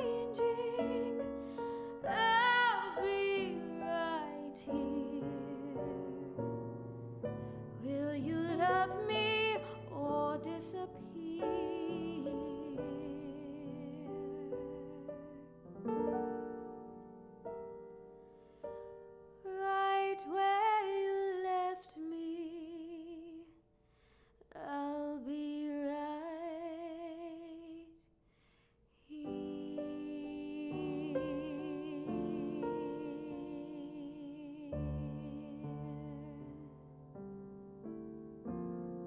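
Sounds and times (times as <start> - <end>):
woman singing with vibrato: 0.0 - 6.5, 7.8 - 15.4, 19.5 - 23.5, 29.1 - 36.7
piano: 0.0 - 28.0, 28.9 - 39.0.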